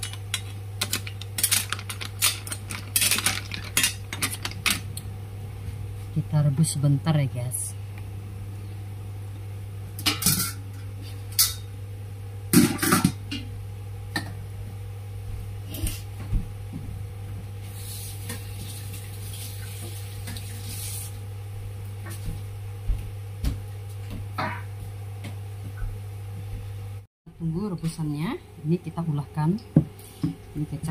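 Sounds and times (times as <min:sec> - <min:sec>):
steady low hum: 0:00.0 - 0:18.4.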